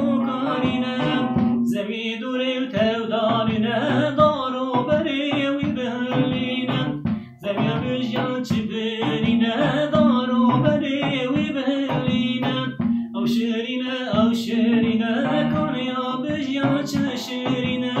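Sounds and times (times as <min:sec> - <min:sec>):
plucked long-necked lute: 0:00.0 - 0:01.8, 0:04.8 - 0:13.5
man singing folk song: 0:00.0 - 0:18.0.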